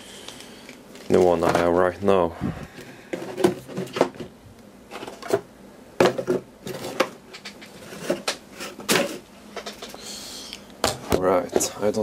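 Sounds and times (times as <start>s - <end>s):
cardboard and plastic rustling: 0.7s - 4.3s, 4.9s - 10.0s
knocks and taps of unpacking: 3.1s - 4.3s, 6.0s - 9.9s.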